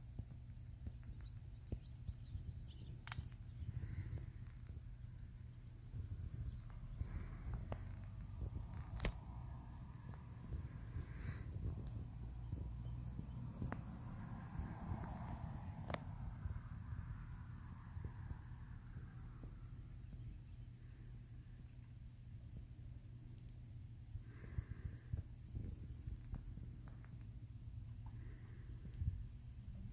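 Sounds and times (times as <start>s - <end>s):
insect chirping: 0.0s - 29.9s
low rumble: 1.7s - 20.5s.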